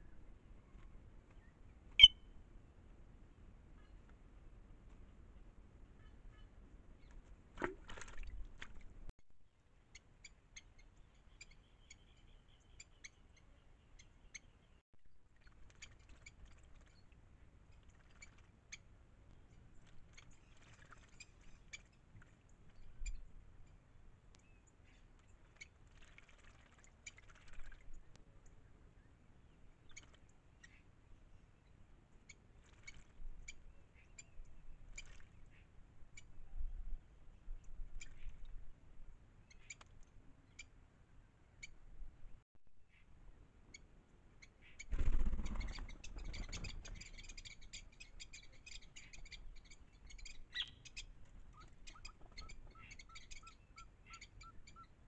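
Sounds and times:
bird chirps and calls: 1.4s - 2.3s, 44.4s - 54.9s
bird splashing in water: 7.4s - 9.0s, 19.9s - 22.4s, 25.2s - 27.8s.

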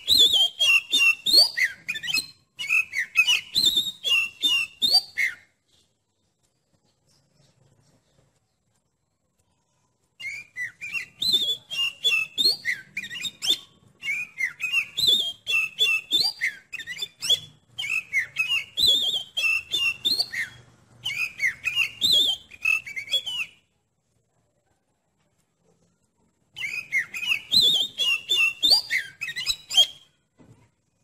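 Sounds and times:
bird singing whistled notes: 0.0s - 5.9s, 10.2s - 23.7s, 26.5s - 30.2s.

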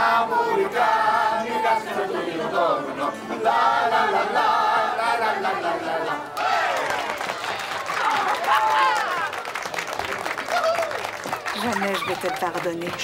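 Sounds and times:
accordion: 0.0s - 6.4s
group of voices singing: 0.0s - 7.1s
people clapping: 6.1s - 13.0s.

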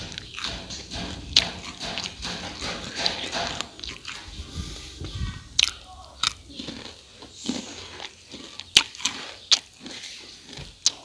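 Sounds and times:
crunching and chewing: 0.0s - 11.0s
crust crackling: 5.1s - 11.0s.

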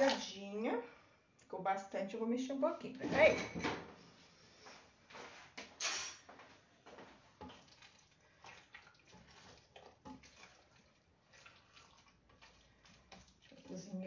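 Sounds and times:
wet sloshes of stirred rice: 7.0s - 14.0s.

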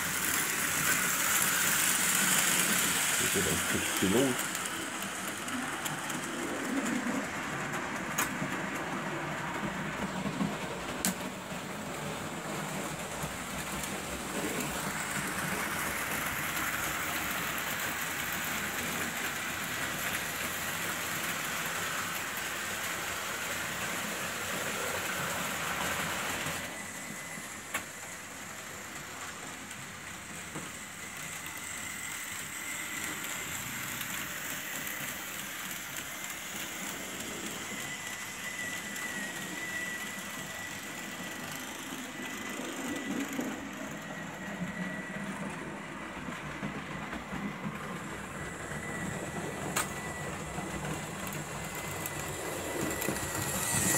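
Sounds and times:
model train wheels rolling on track: 0.0s - 53.9s
high motor whine: 24.8s - 53.9s.

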